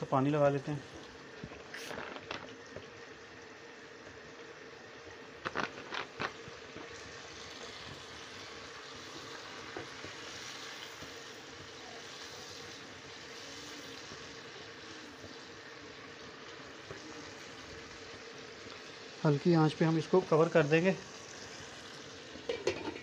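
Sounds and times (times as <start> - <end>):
food sizzling and bubbling in wok: 0.0 - 23.0.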